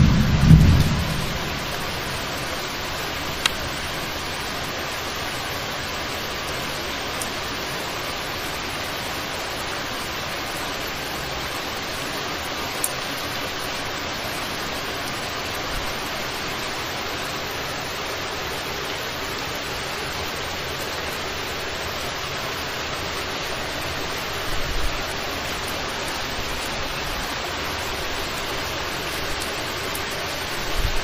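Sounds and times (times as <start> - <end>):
low thumps: 0.0 - 2.3
heavy rain hissing: 0.0 - 31.0
wind: 0.0 - 31.0.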